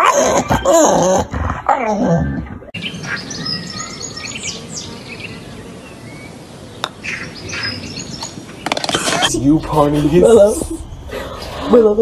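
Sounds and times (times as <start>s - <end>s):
steady outdoor hiss: 2.4s - 12.0s
small birds chirping: 2.7s - 11.8s.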